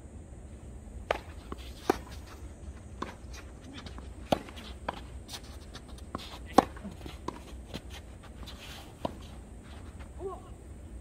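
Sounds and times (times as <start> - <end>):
tennis ball struck by rackets: 1.0 - 2.4, 3.0 - 9.4.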